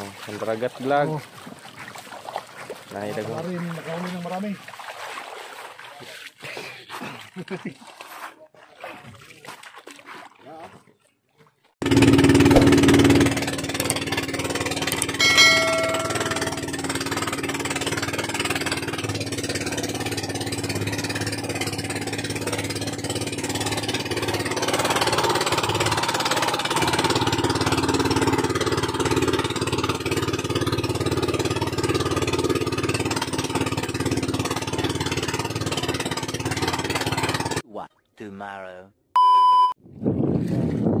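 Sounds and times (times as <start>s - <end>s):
boat engine chugging: 0.0s - 4.7s, 11.8s - 37.6s.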